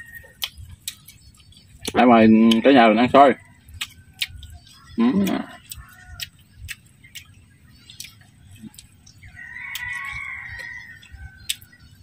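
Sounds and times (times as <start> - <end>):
rooster crowing: 0.0 - 0.4, 4.8 - 6.3, 9.3 - 11.5.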